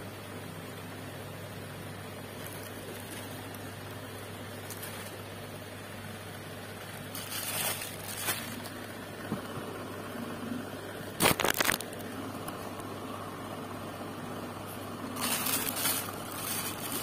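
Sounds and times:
steady low hum: 0.0 - 17.0
plastic packaging crinkling: 2.2 - 3.8, 4.5 - 5.3, 6.8 - 9.0, 11.2 - 12.2, 15.1 - 17.0
loud crackles: 11.2 - 12.1.

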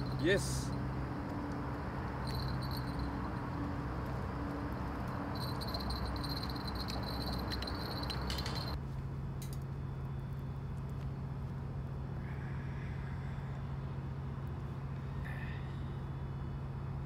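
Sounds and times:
insects chirping: 0.0 - 8.8
distant highway traffic hum: 0.0 - 17.0.

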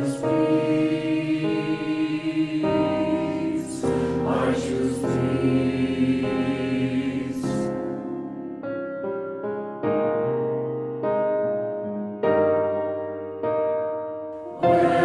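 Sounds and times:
mixed choir singing in harmony: 0.0 - 8.6, 14.5 - 15.0.

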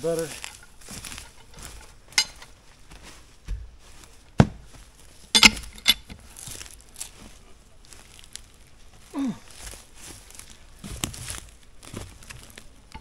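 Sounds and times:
sharp clinks and knocks: 0.4 - 2.5, 5.3 - 6.2.

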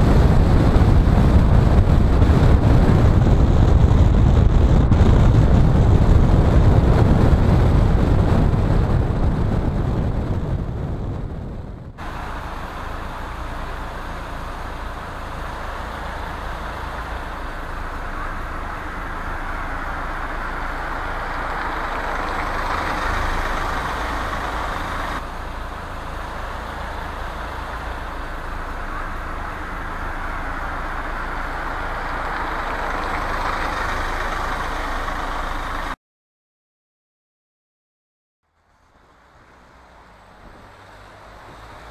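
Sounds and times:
car road noise rumble: 0.0 - 36.0, 38.4 - 41.9
tyre hiss and engine hum: 12.0 - 36.0, 38.5 - 41.9.

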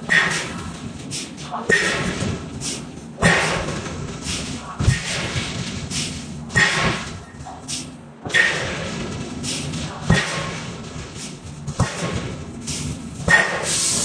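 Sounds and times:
forging hammer striking hot steel: 1.7 - 2.2, 6.5 - 7.3.

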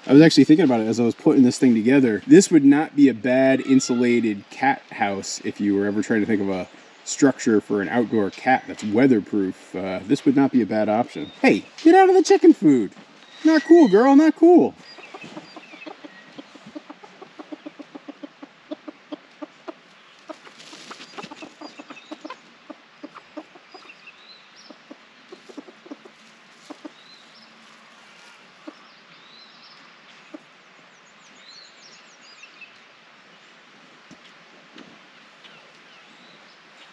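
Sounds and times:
chickens clucking: 0.1 - 29.2, 30.1 - 30.6.

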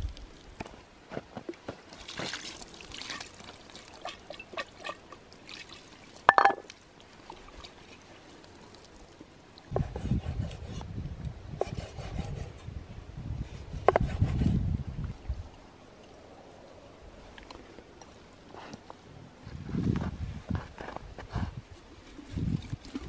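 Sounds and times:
water splashing and trickling: 0.0 - 0.7, 1.5 - 9.8, 21.7 - 23.0.

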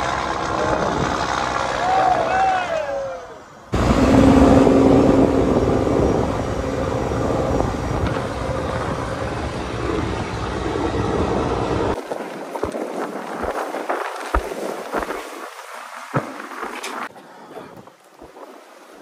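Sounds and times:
boat engine humming: 0.0 - 13.2
loud rushing noise: 3.7 - 12.0.

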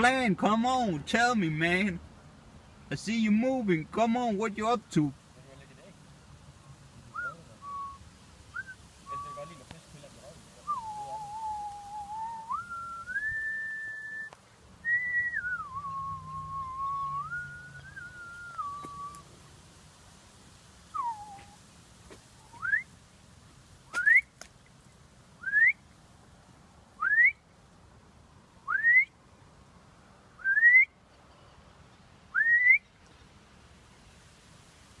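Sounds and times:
person whistling: 7.2 - 8.0, 10.7 - 14.3, 14.9 - 19.2, 21.0 - 21.6, 22.5 - 22.8, 24.0 - 24.3, 27.0 - 27.4, 28.7 - 29.1, 30.4 - 30.9, 32.4 - 32.8.

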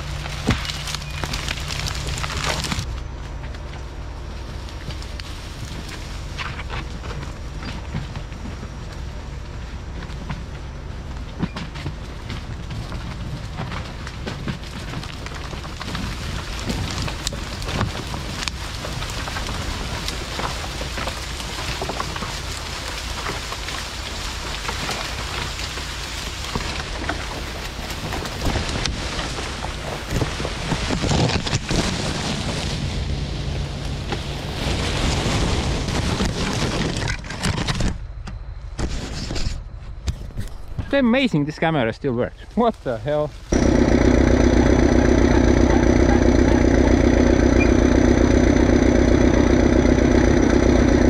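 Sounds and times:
crackling and rattling: 0.0 - 38.1, 42.8 - 51.0
bulldozer running under load: 0.0 - 38.6, 43.0 - 51.0.

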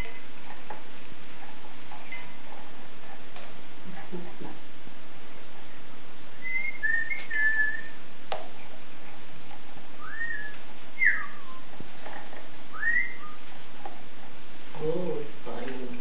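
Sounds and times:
cockatoo whistling: 6.4 - 8.0, 10.0 - 11.7, 12.7 - 13.4.

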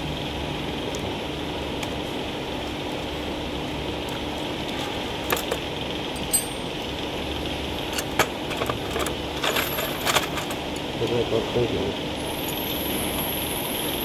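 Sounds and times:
steady mechanical hum: 0.0 - 14.0.

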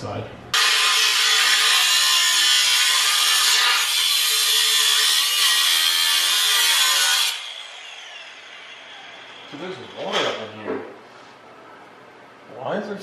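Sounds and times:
angle grinder cutting metal pipe: 0.6 - 10.1
grinder wheel winding down: 0.6 - 10.1.

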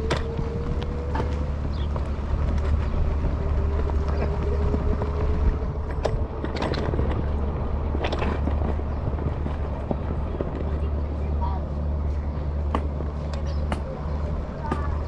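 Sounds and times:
electric scooter motor whine: 0.0 - 11.0
wind rumble on microphone: 0.0 - 15.0.

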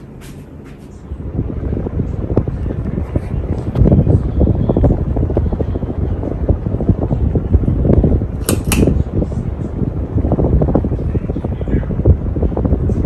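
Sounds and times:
ceiling fan rumble: 0.0 - 13.0
sharp clicks: 8.4 - 9.0.

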